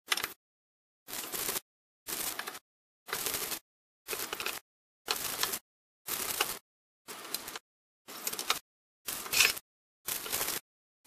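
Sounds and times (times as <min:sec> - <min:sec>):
screwdriver turning a screw: 0:08.2 - 0:09.6.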